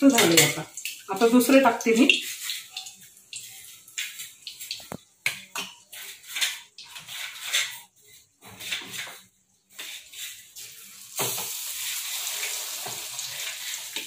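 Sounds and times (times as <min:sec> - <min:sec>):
spoon scraping wet chicken: 0:02.1 - 0:10.9.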